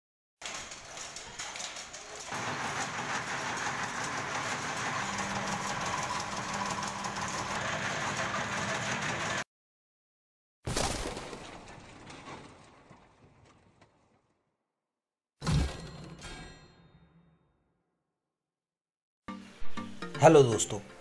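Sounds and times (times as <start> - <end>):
machinery clatter and hum: 0.4 - 9.4.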